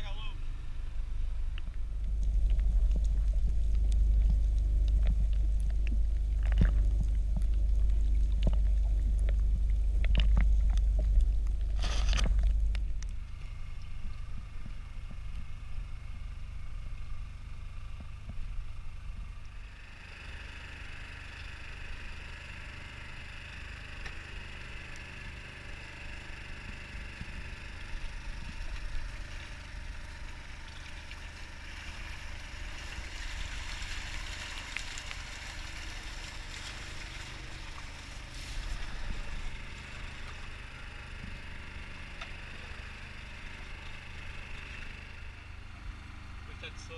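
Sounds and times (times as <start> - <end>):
boat engine: 0.0 - 46.9
deep underwater rumble: 0.0 - 46.9
fish splashing in net: 29.3 - 40.5.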